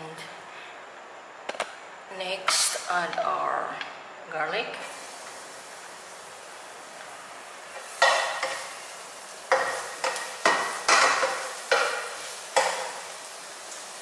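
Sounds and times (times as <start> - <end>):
garlic sizzling in oil: 4.8 - 14.0.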